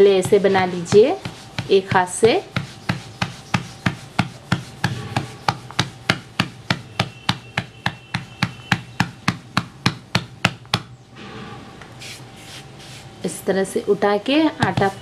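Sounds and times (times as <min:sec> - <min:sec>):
hand patting dough: 0:00.0 - 0:11.0, 0:14.4 - 0:15.0.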